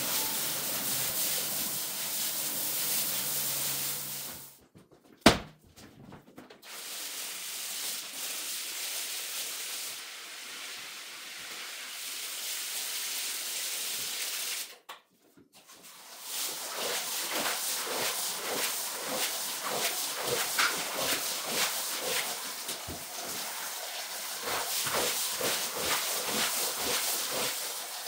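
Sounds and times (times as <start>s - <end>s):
wand scraping wet rug: 0.0s - 4.4s, 15.8s - 28.0s
hose spraying water: 0.0s - 4.6s, 6.6s - 14.7s, 15.7s - 28.0s.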